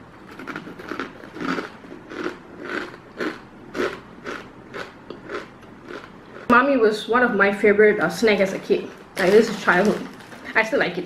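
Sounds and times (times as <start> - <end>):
person chewing crunchy snack: 0.2 - 6.5.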